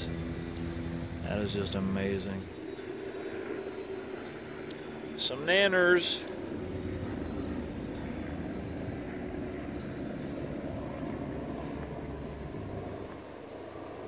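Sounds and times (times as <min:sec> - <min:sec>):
low droning rumble: 0:06.2 - 0:14.0.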